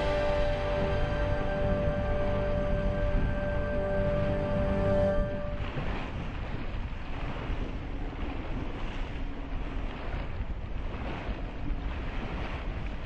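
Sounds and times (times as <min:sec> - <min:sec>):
sea water rushing: 0:00.0 - 0:13.0
wind buffeting microphone: 0:00.0 - 0:13.0.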